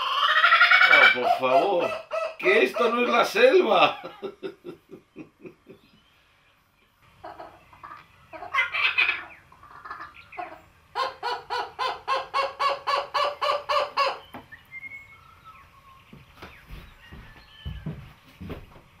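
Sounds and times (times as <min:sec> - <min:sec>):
kookaburra laughing call: 0:07.3 - 0:14.2.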